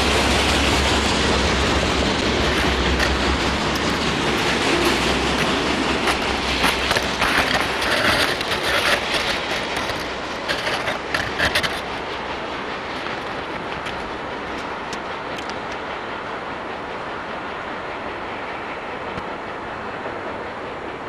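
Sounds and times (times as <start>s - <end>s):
clacks over rail joints: 0.0s - 21.0s
train wheels rumbling on rail: 0.0s - 21.0s.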